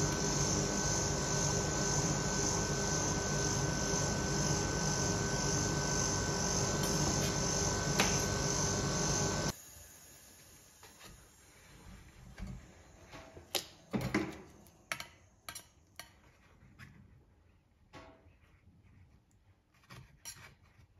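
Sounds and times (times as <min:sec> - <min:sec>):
refrigeration unit hum and whine: 0:00.0 - 0:16.4
metal spatula scraping ice cream: 0:18.2 - 0:20.9.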